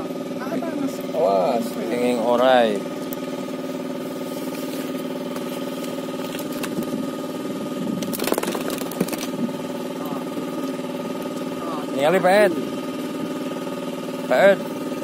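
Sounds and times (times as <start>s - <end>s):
boat engine running: 0.0s - 15.0s
rustle and clatter of handling: 4.1s - 6.9s.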